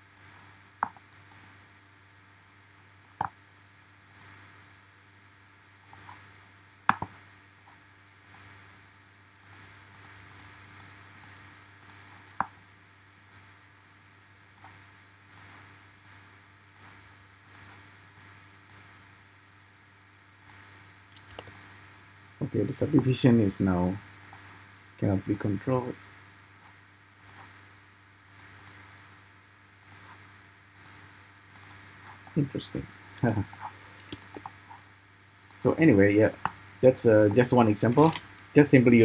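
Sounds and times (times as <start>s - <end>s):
faint steady hum: 0.0s - 39.0s
mouse and keyboard clicks: 21.2s - 21.7s, 30.8s - 32.2s, 33.4s - 34.6s.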